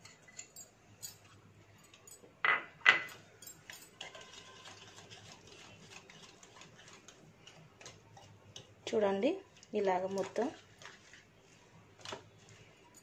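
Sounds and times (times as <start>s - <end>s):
wire whisk scraping in bowl: 3.7s - 8.7s.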